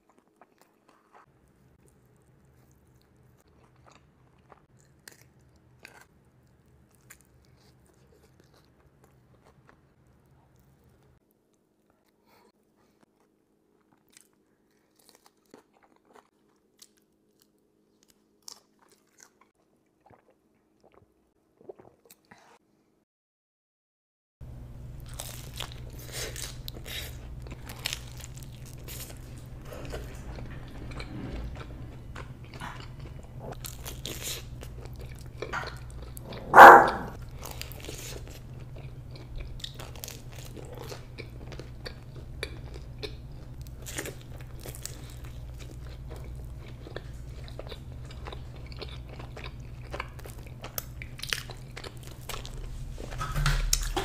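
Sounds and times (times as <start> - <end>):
crunchy chewing: 0.0 - 21.0, 25.0 - 52.8
low hum: 24.4 - 37.4.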